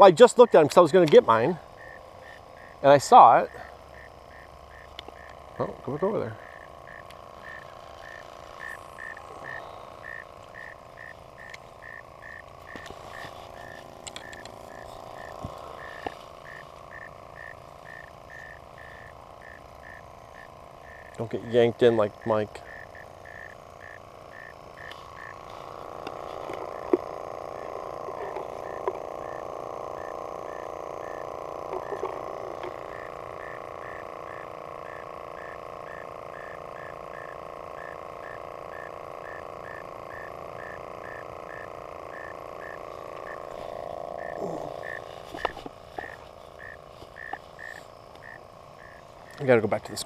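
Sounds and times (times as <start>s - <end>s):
frogs calling: 0.0s - 50.0s
steady hum: 0.0s - 50.0s.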